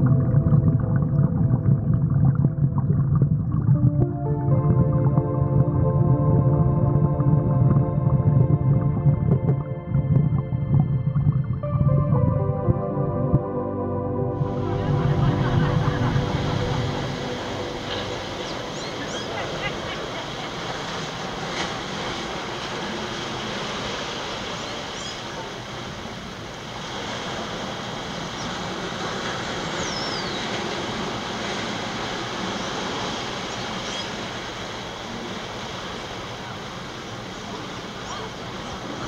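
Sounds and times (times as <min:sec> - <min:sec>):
steady rushing wind over sea: 0:14.4 - 0:39.0.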